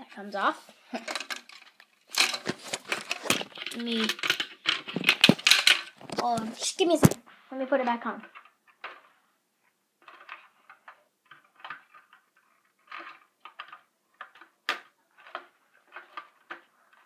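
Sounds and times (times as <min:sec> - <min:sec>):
plastic parts clicking and rattling: 0:00.8 - 0:07.2, 0:07.8 - 0:17.0.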